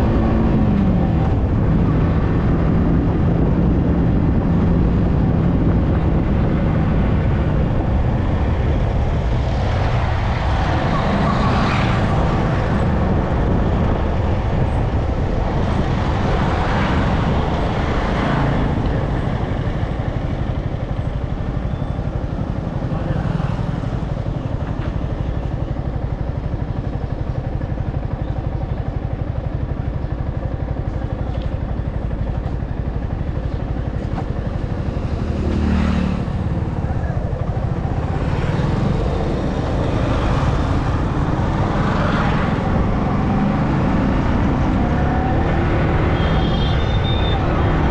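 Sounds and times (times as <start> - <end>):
road noise rushing: 0.0 - 27.6, 30.4 - 47.9
passing traffic: 0.0 - 47.9
motorcycle engine running: 12.0 - 47.9.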